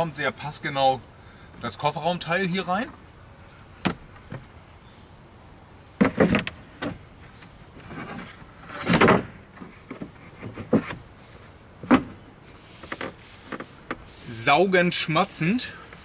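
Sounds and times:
board scraping slide: 7.8s - 11.0s.

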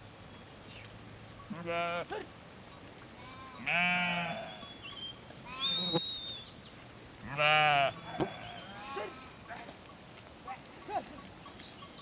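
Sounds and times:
sheep and goats bleating: 1.4s - 2.3s, 3.1s - 6.2s, 7.2s - 9.8s.

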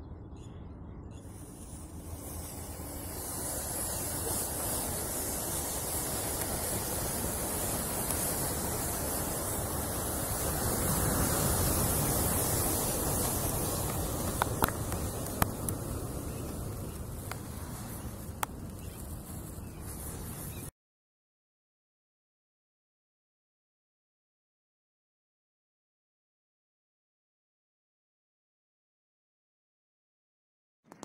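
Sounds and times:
matches flaring with a hissing rush: 1.1s - 20.7s
big fire roaring: 1.4s - 20.2s
sharp cracks: 12.9s - 19.1s.

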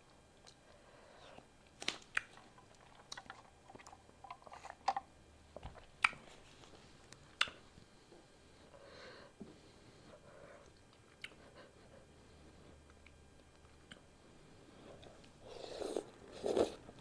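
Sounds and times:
chewing and slurping noodles: 15.5s - 17.0s.

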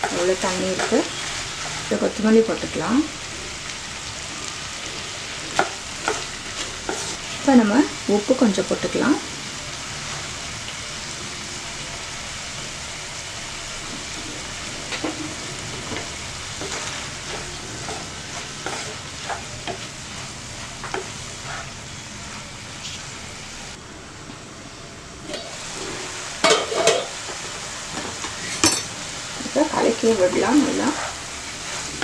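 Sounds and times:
food sizzling in a frying pan: 0.0s - 23.8s, 24.4s - 32.0s
spatula scraping a pan: 5.0s - 7.4s, 13.9s - 21.8s, 29.8s - 32.0s.

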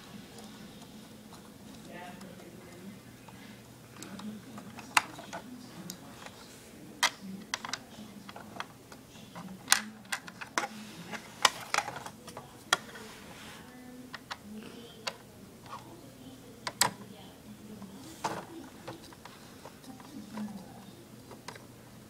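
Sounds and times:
plastic parts clicking: 4.0s - 5.4s, 7.0s - 8.7s, 9.4s - 12.9s, 16.6s - 17.0s.

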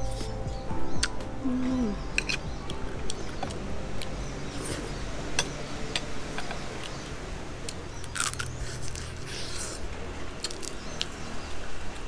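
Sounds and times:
crab shells cracking: 10.4s - 11.1s.

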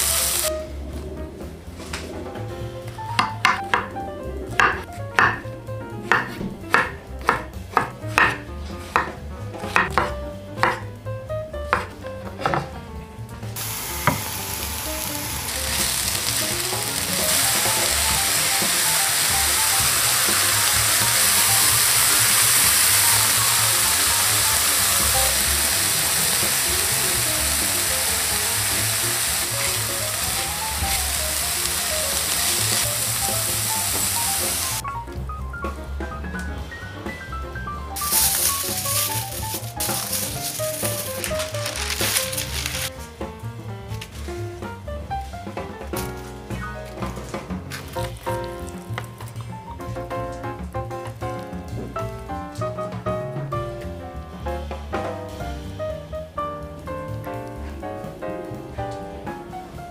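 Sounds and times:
vegetables sizzling in frying pan: 0.0s - 0.5s, 13.6s - 34.8s, 38.0s - 42.9s.

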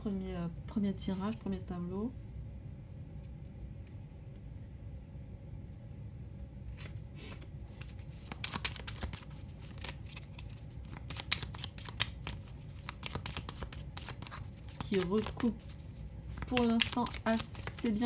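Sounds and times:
steady low hum: 0.0s - 18.0s
deck of cards being shuffled: 6.7s - 18.0s.

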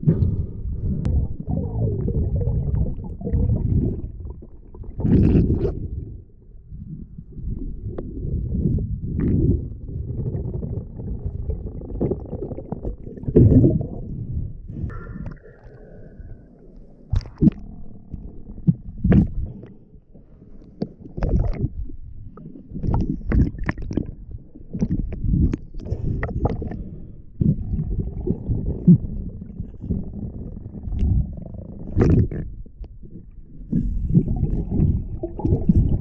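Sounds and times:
underwater rumbling and sloshing: 0.0s - 36.0s.

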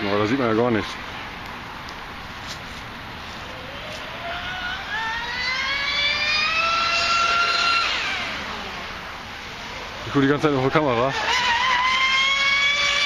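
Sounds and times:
electric motor whine: 3.4s - 10.1s, 10.8s - 13.0s.

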